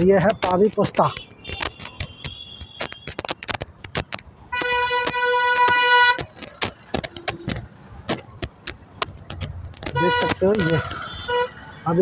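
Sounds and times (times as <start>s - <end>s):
short sharp clicks and knocks: 0.2s - 11.2s
vehicle horn blast: 9.9s - 11.6s.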